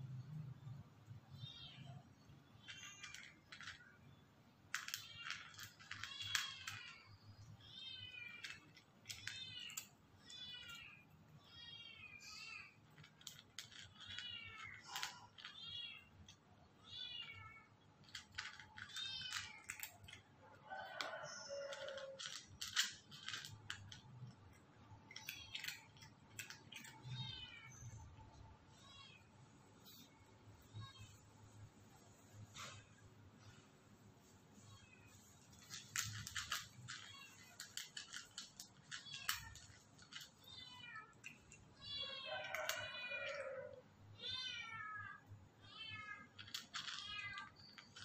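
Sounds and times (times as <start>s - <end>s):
cat mewing: 42.0s - 45.3s.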